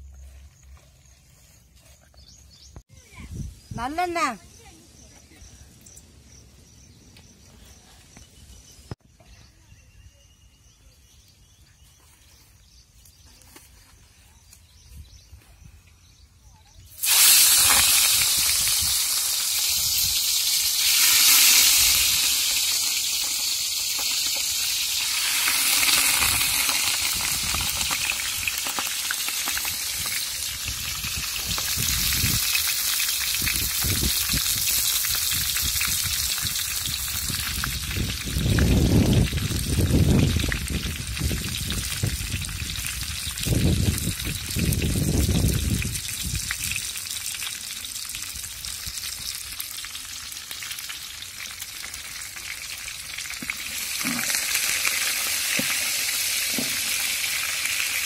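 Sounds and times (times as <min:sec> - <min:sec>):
oil sizzling in a pot: 0:16.9 - 0:58.0.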